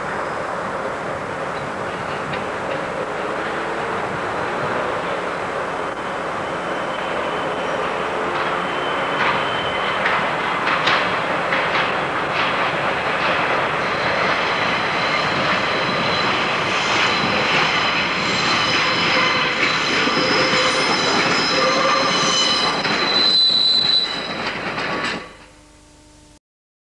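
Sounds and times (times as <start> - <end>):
railbus wheels rumbling over rails: 0.0 - 25.5
high-pitched wheel squeal: 5.9 - 10.1, 14.8 - 24.5.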